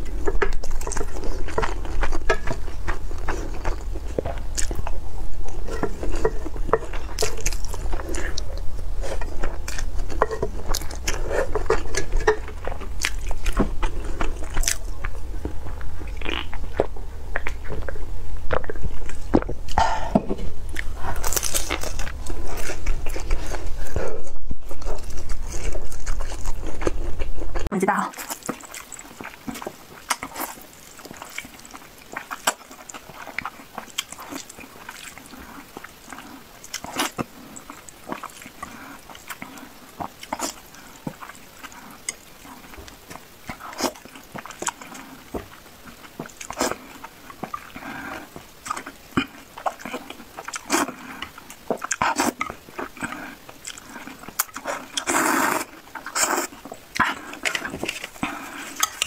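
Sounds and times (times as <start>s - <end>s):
person slurping noodles: 54.0s - 59.0s.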